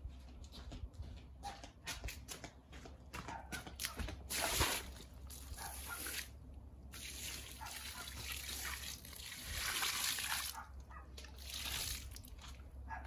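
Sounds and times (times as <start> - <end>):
water trickling and splashing: 4.3 - 12.8.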